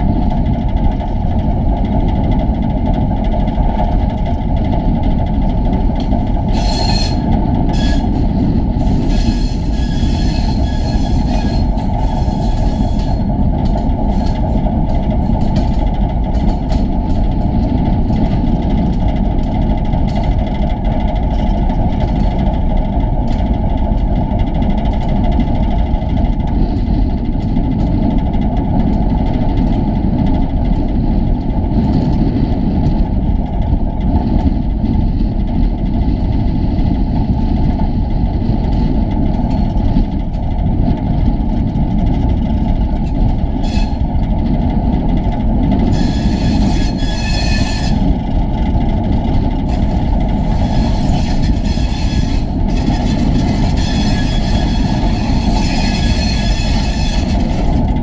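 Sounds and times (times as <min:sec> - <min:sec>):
diesel locomotive rumbling: 0:00.0 - 0:58.0
high-pitched wheel squeal: 0:06.5 - 0:13.3, 0:43.6 - 0:44.0, 0:45.9 - 0:48.1, 0:50.5 - 0:57.8.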